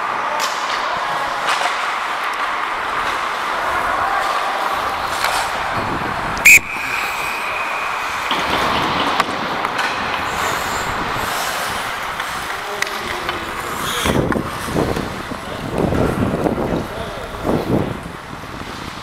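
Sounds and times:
ice hockey play noise: 0:00.0 - 0:19.0
referee's whistle blast: 0:06.4 - 0:08.3.

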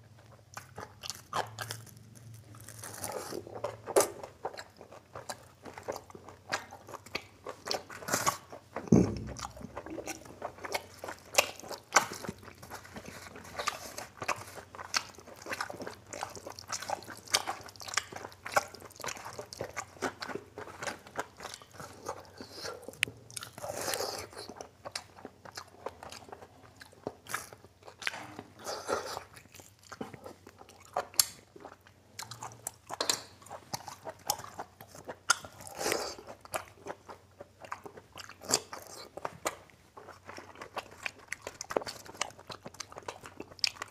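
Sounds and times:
man chewing and smacking: 0:00.0 - 0:43.9
low thump: 0:08.9 - 0:09.6.

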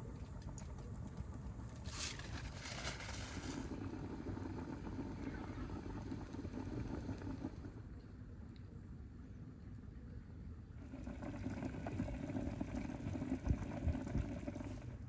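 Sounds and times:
liquid boiling: 0:00.0 - 0:08.0, 0:10.8 - 0:15.0
wood fire burning: 0:00.0 - 0:08.0.

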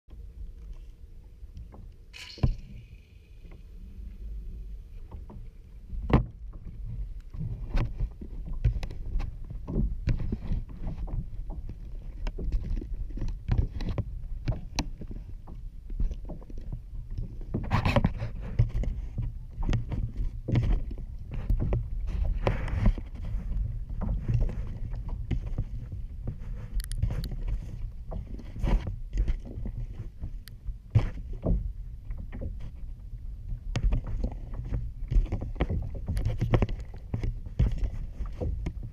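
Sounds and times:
water lapping against kayak hull: 0:00.1 - 0:38.9.

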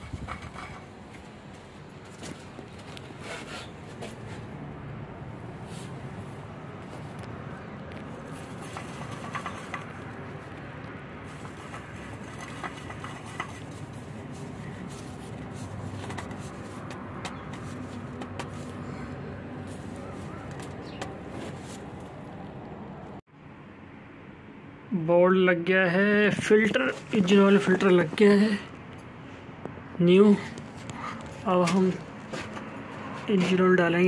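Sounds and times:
oil filter clicking and scraping: 0:00.0 - 0:01.3, 0:06.9 - 0:18.9
outdoor background noise: 0:00.0 - 0:34.0.

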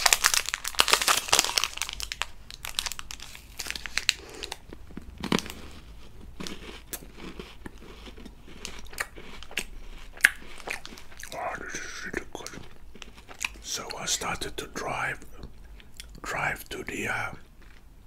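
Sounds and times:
sharp wrapper cracks: 0:00.0 - 0:04.6
candy wrapper crinkling: 0:00.0 - 0:15.4.

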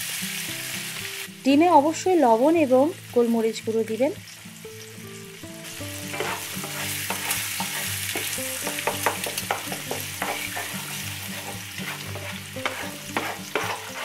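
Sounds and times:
eggs sizzling in oil: 0:00.0 - 0:14.0
spatula scraping pan: 0:05.9 - 0:14.0.

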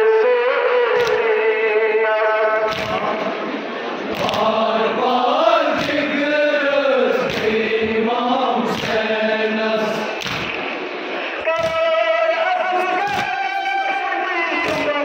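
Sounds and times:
hands striking chests: 0:02.7 - 0:03.1, 0:04.1 - 0:04.6, 0:05.6 - 0:06.2, 0:07.2 - 0:07.7, 0:08.7 - 0:09.1, 0:10.1 - 0:10.8, 0:11.5 - 0:12.0, 0:13.0 - 0:13.4
men chanting in unison: 0:04.1 - 0:10.5.

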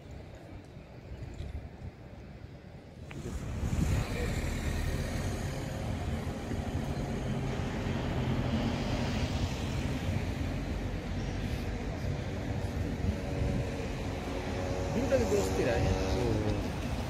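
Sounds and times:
motor traffic rumble: 0:00.0 - 0:17.0.

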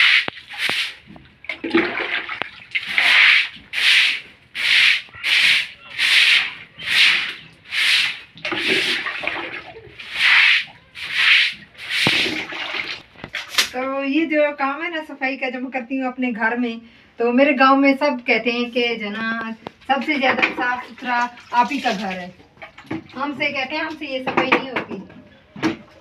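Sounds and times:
broom scrubbing wet concrete: 0:00.0 - 0:01.2, 0:02.8 - 0:13.7.

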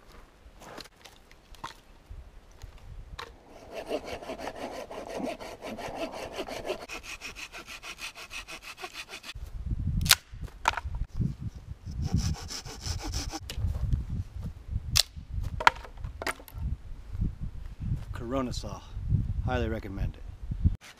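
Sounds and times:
hand saw cutting branch: 0:03.5 - 0:09.4, 0:12.0 - 0:13.4.

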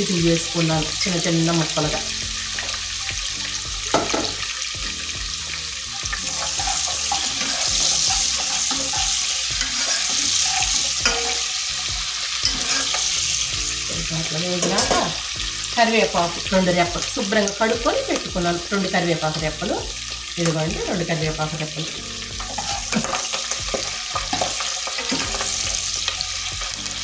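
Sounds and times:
onions sizzling in hot oil: 0:00.0 - 0:27.0
spoon scraping against pan: 0:06.0 - 0:13.8, 0:14.5 - 0:15.7, 0:22.2 - 0:26.7.

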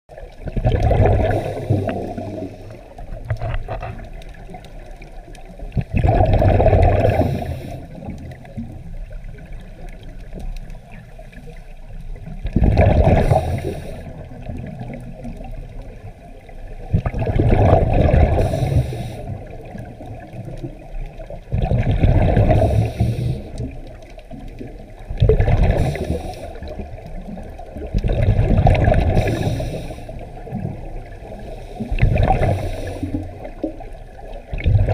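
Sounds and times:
underwater wash: 0:00.1 - 0:34.9
regulator bubbling exhaled air: 0:00.4 - 0:04.0, 0:05.7 - 0:09.6, 0:12.4 - 0:15.5, 0:16.8 - 0:20.8, 0:21.5 - 0:23.9, 0:24.6 - 0:34.9.

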